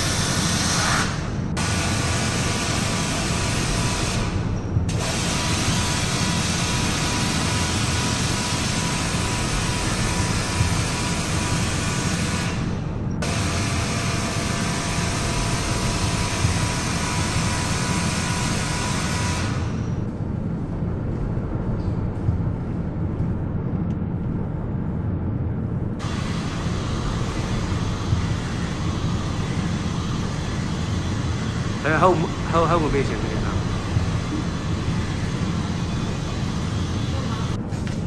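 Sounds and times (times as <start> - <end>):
low hum: 0.0 - 38.0.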